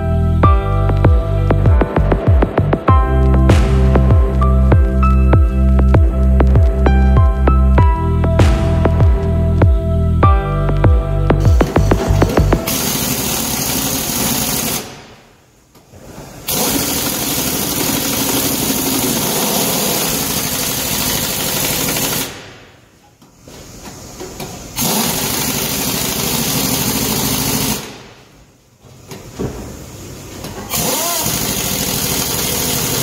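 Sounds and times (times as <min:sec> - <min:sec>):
impact wrench hammering: 0:30.7 - 0:33.0.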